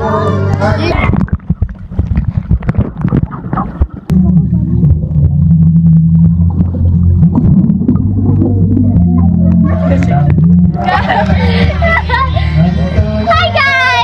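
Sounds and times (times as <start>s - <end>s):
underwater bubbles and splashing: 0.8s - 12.3s
loud low underwater drone: 4.1s - 13.3s.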